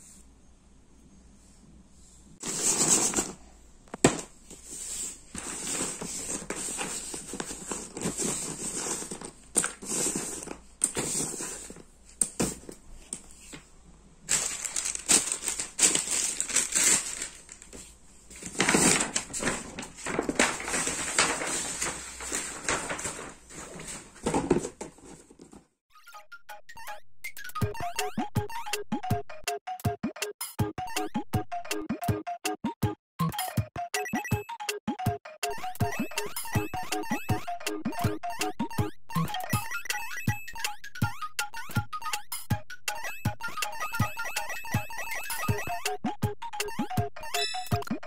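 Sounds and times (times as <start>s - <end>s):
puzzle pieces swept across paper: 2.0s - 3.5s, 4.5s - 13.7s, 14.3s - 25.4s.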